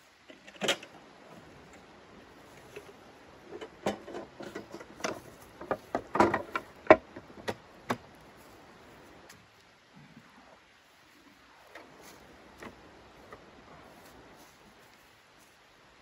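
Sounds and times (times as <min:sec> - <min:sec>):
metal camp furniture clacking: 0:00.2 - 0:08.2.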